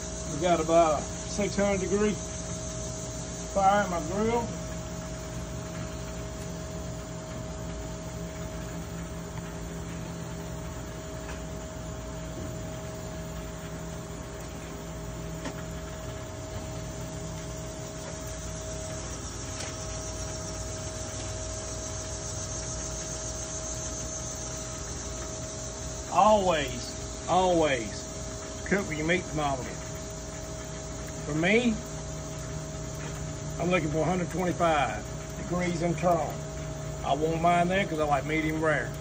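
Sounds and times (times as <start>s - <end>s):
steady electrical hum: 0.0s - 39.0s
steaks sizzling on a grill: 0.0s - 39.0s
faint clicks of meat on grate: 26.3s - 39.0s.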